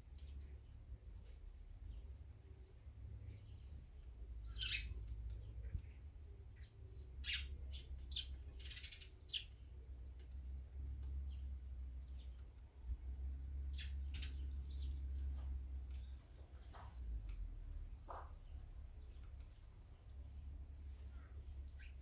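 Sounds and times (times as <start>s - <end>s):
songbirds chirping: 0.0s - 22.0s.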